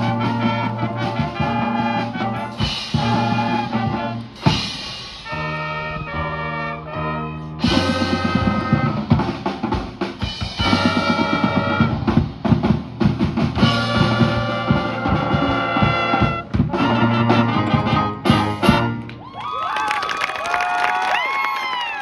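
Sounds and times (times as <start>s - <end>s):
drums beating rapid hits: 0.0s - 5.4s, 7.6s - 19.0s
sustained brass chords: 0.0s - 12.5s, 13.6s - 19.2s
marching band playing: 0.0s - 19.4s.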